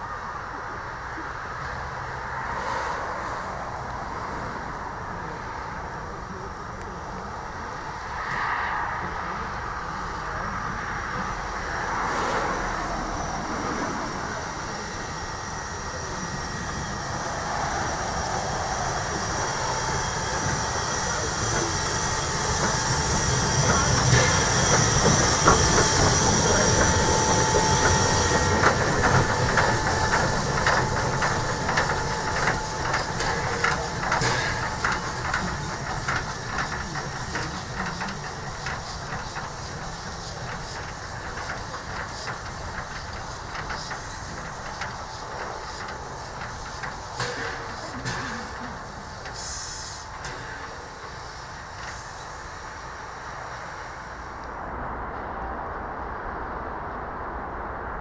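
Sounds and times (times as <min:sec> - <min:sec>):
wheels clicking and clanking on rails: 0:03.2 - 0:54.8
steam hissing: 0:11.3 - 0:54.4.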